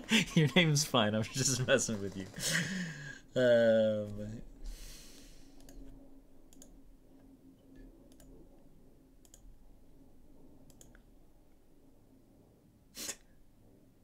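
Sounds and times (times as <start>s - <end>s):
low steady hum: 0.0s - 14.0s
computer mouse clicks: 5.6s - 6.8s, 8.1s - 8.4s, 9.2s - 9.5s, 10.6s - 11.1s.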